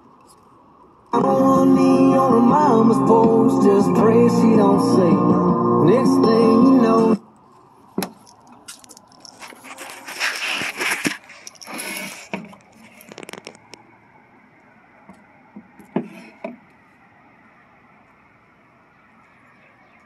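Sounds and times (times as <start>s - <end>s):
plastic scraping and rustling: 7.5s - 13.8s.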